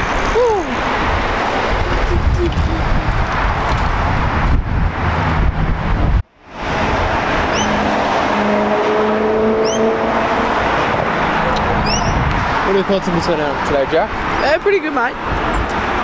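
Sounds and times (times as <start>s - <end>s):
cars driving past: 0.0s - 16.0s
car engine driving by: 6.5s - 13.7s.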